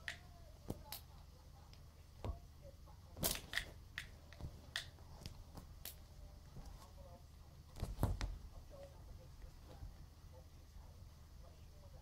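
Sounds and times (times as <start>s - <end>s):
cat batting at curtain and cord: 3.2s - 7.0s, 7.7s - 8.6s.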